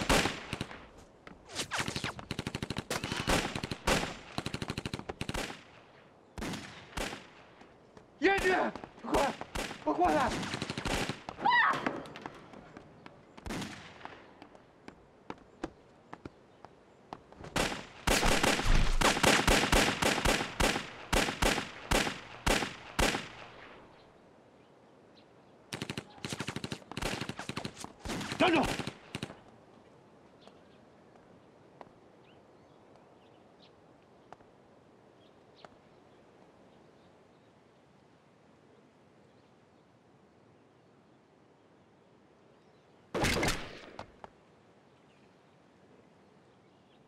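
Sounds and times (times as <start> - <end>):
pistol gunshots: 0.0 - 0.9, 1.7 - 5.8, 6.4 - 7.5, 8.3 - 11.4, 13.4 - 14.3, 17.5 - 23.8, 25.7 - 29.4, 43.1 - 44.0
man shouting: 8.2 - 10.4, 28.4 - 28.7.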